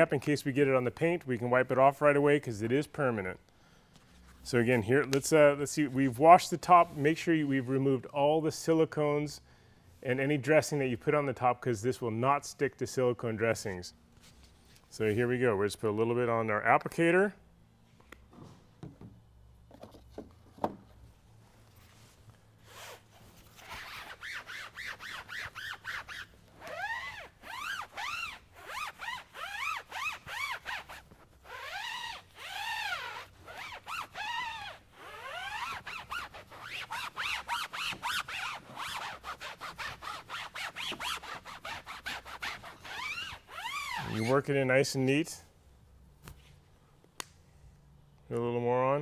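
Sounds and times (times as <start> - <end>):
foam pad rubbing and squeaking: 22.6 - 44.5.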